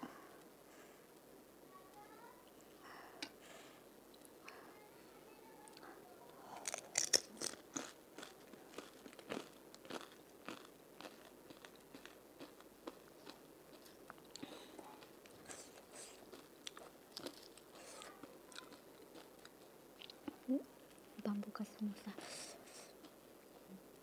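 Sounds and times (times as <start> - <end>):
chewing with small crackles: 0.3 - 4.9, 5.5 - 24.0
crisp shell crunching: 6.4 - 20.2.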